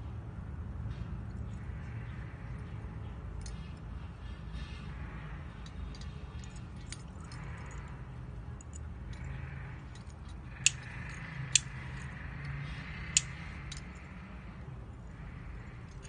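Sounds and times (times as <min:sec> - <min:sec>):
bangle clicking in fingers: 0:05.5 - 0:14.2.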